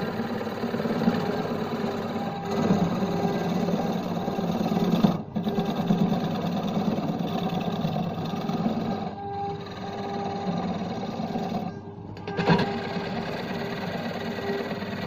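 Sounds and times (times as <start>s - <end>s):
lathe machine hum: 0.0s - 15.0s
turning tool scraping wood: 0.8s - 11.8s.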